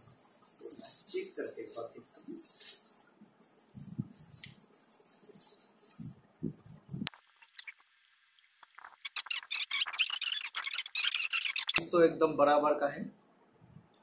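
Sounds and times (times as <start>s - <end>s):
plastic packaging crinkling: 0.0s - 7.0s.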